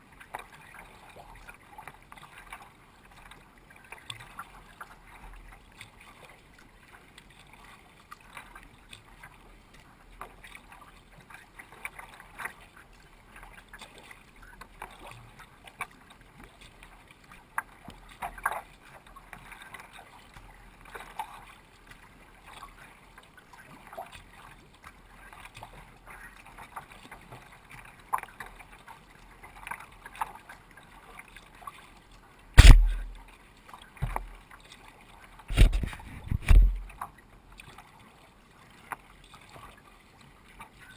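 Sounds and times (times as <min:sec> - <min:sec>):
water lapping against kayak hull: 0:00.0 - 0:40.9
loud knock on camera: 0:32.6 - 0:33.2, 0:35.5 - 0:36.9.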